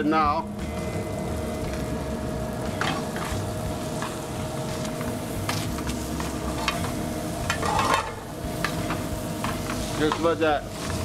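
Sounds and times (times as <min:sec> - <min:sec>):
food sizzling in a pan: 0:00.0 - 0:11.0
metal tongs clinking on pan: 0:06.6 - 0:10.5.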